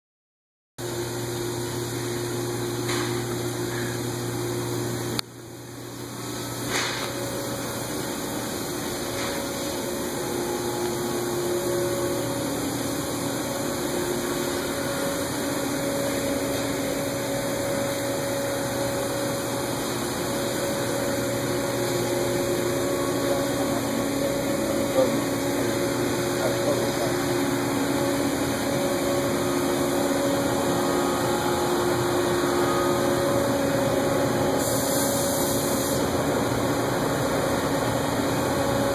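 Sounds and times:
industrial machinery drone: 0:00.8 - 0:38.9.

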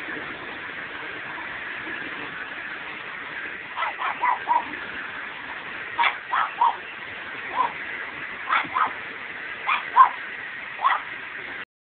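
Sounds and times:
dog barking in high yips: 0:03.8 - 0:04.7, 0:06.0 - 0:06.8, 0:07.5 - 0:07.8, 0:08.5 - 0:09.0, 0:09.6 - 0:10.2, 0:10.8 - 0:11.1.

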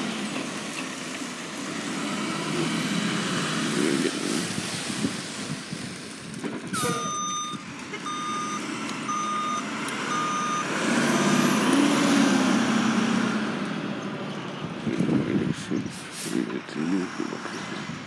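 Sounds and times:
truck engine running: 0:00.0 - 0:18.0
truck backup alarm beeping: 0:06.7 - 0:11.7.

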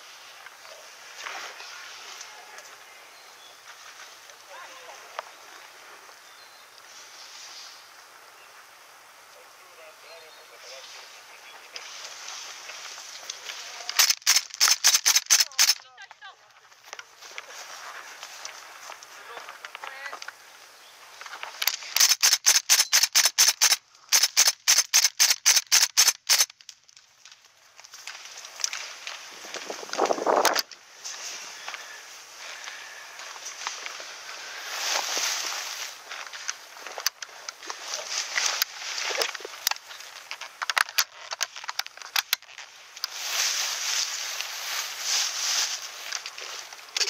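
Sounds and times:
brush rustling through grass: 0:00.0 - 0:47.0
sharp irregular clicks: 0:13.9 - 0:15.8, 0:21.6 - 0:26.8
airsoft rifle rapid shots: 0:14.0 - 0:15.8, 0:22.0 - 0:26.5.

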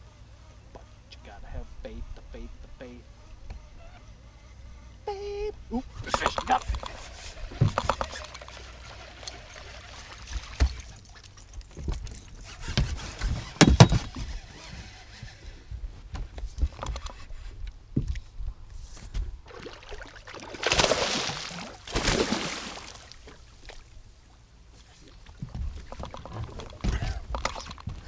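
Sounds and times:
knocks and thumps inside a boat: 0:06.0 - 0:08.6, 0:10.1 - 0:14.4, 0:15.2 - 0:18.2, 0:24.8 - 0:28.0
fish splashing at the surface: 0:19.5 - 0:23.4.

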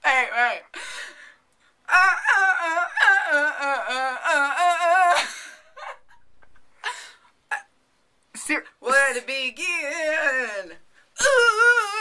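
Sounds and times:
woman humming: 0:01.9 - 0:05.2, 0:11.2 - 0:12.0.

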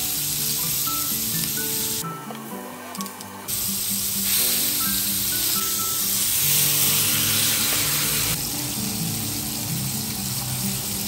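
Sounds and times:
steak sizzling in a pan: 0:00.0 - 0:02.0, 0:03.5 - 0:11.0
background music: 0:00.0 - 0:11.0.

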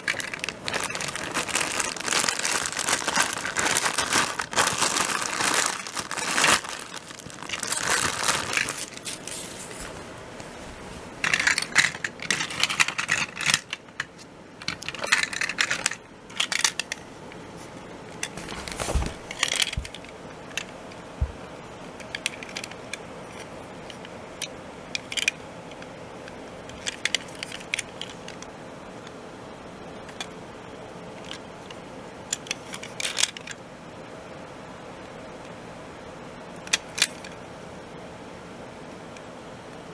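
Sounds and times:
plastic packaging crinkling: 0:00.0 - 0:10.0, 0:18.2 - 0:20.7.

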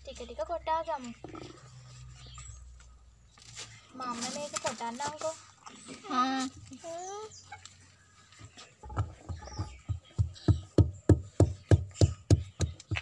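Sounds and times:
wooden pestle pounding in mortar: 0:08.9 - 0:13.0.

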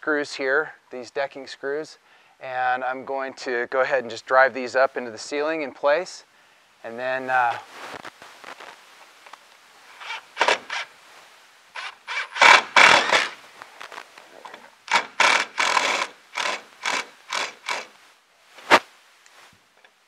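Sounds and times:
screws creaking into wood: 0:09.9 - 0:10.9, 0:11.8 - 0:13.4, 0:14.4 - 0:18.0
cordless drill driving screws: 0:10.0 - 0:10.9, 0:11.8 - 0:13.4, 0:14.9 - 0:17.9.

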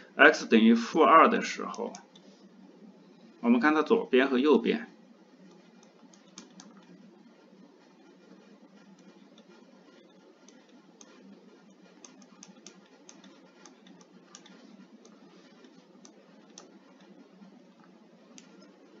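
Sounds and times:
low hiss: 0:00.0 - 0:19.0
stylus tapping on tablet screen: 0:12.0 - 0:17.2.

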